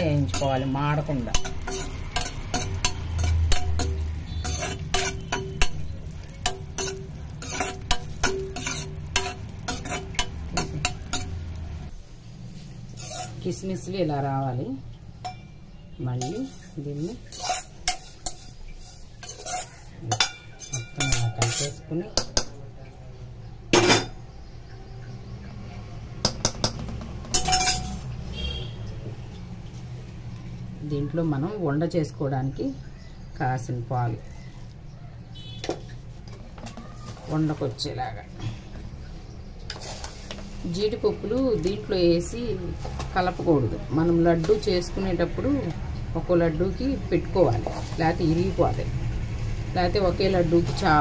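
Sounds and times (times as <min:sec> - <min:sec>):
metal cooking utensils clinking: 0:00.0 - 0:11.9, 0:12.9 - 0:14.3, 0:15.2 - 0:23.0, 0:23.7 - 0:24.4, 0:26.2 - 0:28.6
metal spoon scraping a pan: 0:00.0 - 0:11.9, 0:12.6 - 0:14.1, 0:15.2 - 0:22.5, 0:26.2 - 0:28.8, 0:39.6 - 0:45.8, 0:46.6 - 0:48.9
light sizzling: 0:00.0 - 0:51.0.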